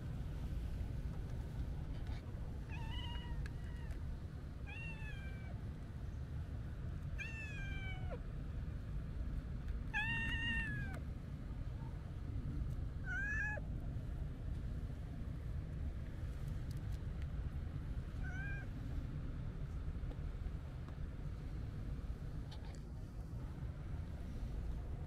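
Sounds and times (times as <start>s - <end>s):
cat meowing: 4.7s - 5.5s, 7.2s - 8.2s, 9.9s - 11.0s, 13.0s - 13.6s, 18.2s - 18.7s.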